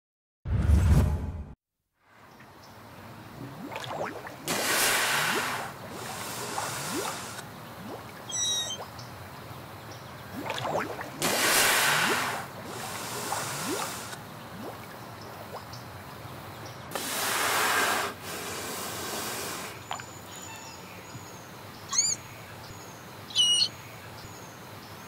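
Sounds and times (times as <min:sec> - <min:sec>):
rushing hiss bursts: 0:04.5 - 0:07.4, 0:11.2 - 0:14.2, 0:16.9 - 0:19.8
faint thin whistles: 0:08.3 - 0:08.8
manatee squeaks underwater: 0:08.3 - 0:08.8.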